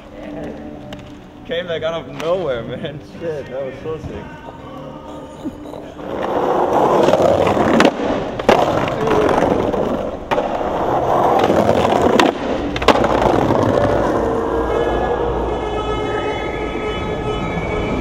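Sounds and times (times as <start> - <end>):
skateboard clacking on ground: 6.0 - 14.3
skateboard wheel rumble: 6.0 - 15.4.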